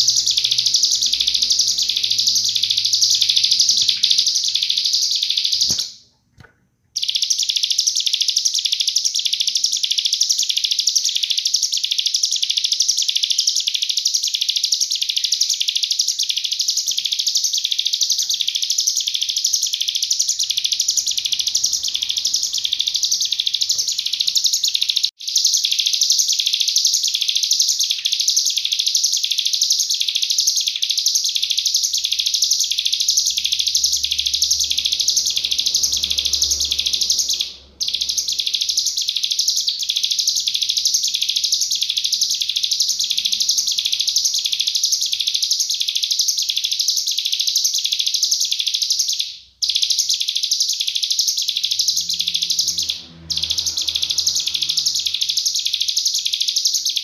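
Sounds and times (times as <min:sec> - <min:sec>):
bird singing rapid sharp notes: 0:00.0 - 0:06.0, 0:07.0 - 0:57.0.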